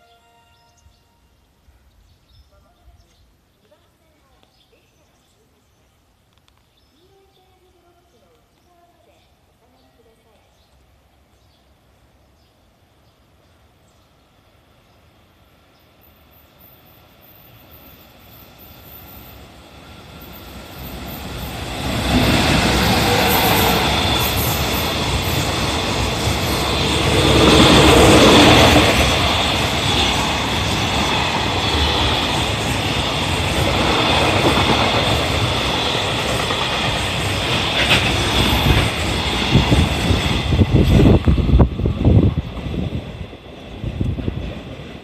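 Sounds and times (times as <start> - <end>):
freight train wheels rumbling: 17.9 - 45.0.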